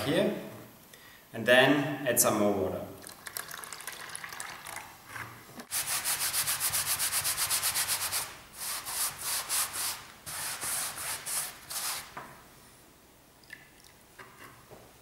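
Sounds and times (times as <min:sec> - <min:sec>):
paintbrush scrubbing canvas: 0:05.7 - 0:12.1.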